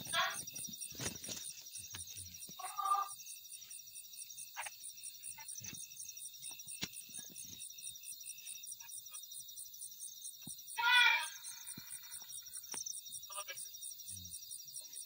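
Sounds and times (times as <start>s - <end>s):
faint clicks and rustles: 0.0s - 2.6s
crickets chirping: 0.0s - 15.0s.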